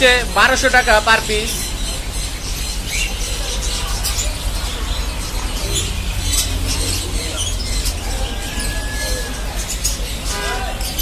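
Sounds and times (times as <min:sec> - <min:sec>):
caged birds chirping: 0:00.0 - 0:11.0
low rumble: 0:01.6 - 0:09.8.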